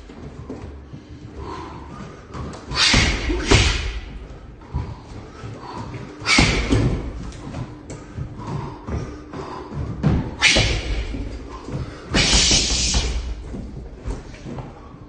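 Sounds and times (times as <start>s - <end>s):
gloves punching heavy bag: 2.6s - 5.0s, 6.2s - 7.7s, 9.5s - 14.1s.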